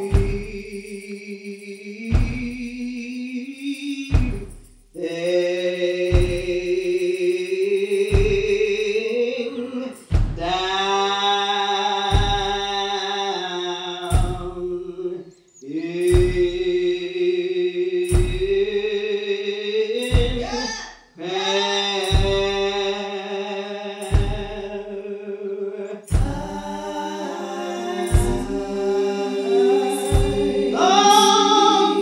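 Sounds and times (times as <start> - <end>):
congregation singing a slow hymn: 0.0 - 4.3, 5.0 - 20.2, 21.2 - 32.0
deep thud keeping time: 0.1 - 0.9, 2.1 - 2.9, 4.1 - 4.7, 6.1 - 6.8, 8.0 - 9.0, 10.1 - 10.8, 16.1 - 16.8, 18.1 - 18.7, 24.1 - 24.6, 26.1 - 26.9, 28.1 - 28.9, 30.0 - 31.3.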